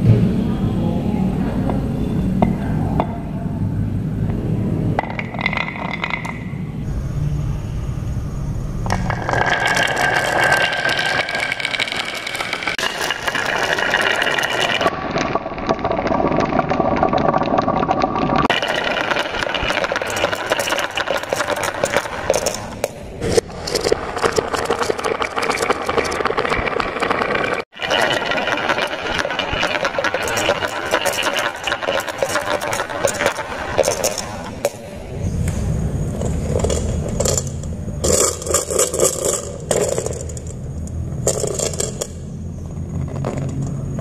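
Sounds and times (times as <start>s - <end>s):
marbles rolling on wooden track: 5.0s - 6.5s, 8.9s - 14.9s, 18.4s - 23.0s, 23.6s - 34.9s, 36.1s - 40.6s, 41.2s - 42.2s, 42.8s - 43.8s
marbles clicking together: 18.5s - 22.9s, 27.8s - 34.8s.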